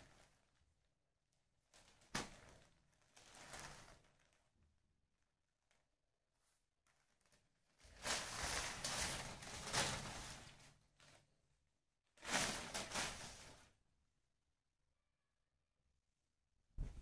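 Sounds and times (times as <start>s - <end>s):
cloth and newspaper rustling: 1.7s - 4.4s, 6.8s - 11.3s, 12.2s - 13.7s.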